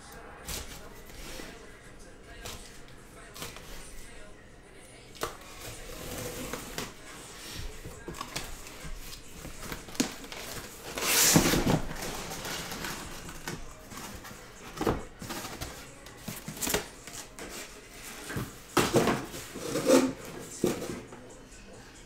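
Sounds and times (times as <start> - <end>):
boxes scraping out of cardboard: 5.4 - 21.1
boxes knocking and thumping: 7.7 - 21.2.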